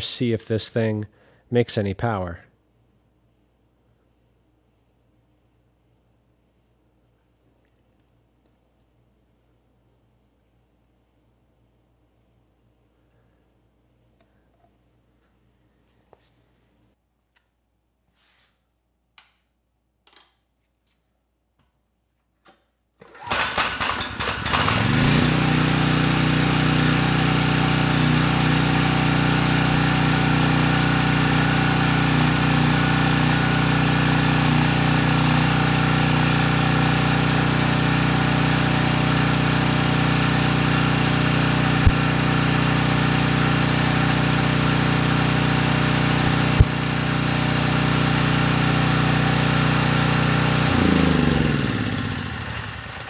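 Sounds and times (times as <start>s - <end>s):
generator engine cranking and running: 23.0s - 53.0s.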